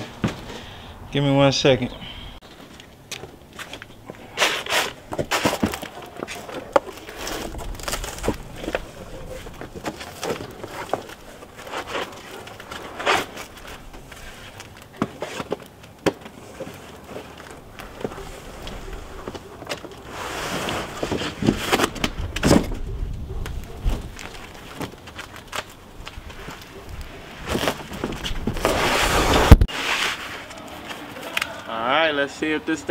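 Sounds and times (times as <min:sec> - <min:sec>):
cardboard box rustling and scraping: 0:04.2 - 0:22.8, 0:26.3 - 0:30.5.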